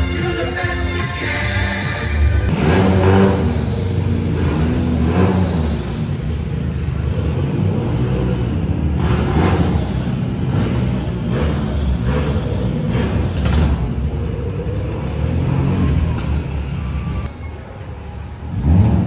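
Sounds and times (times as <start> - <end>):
car engine revving: 2.2 - 17.3, 18.5 - 19.0.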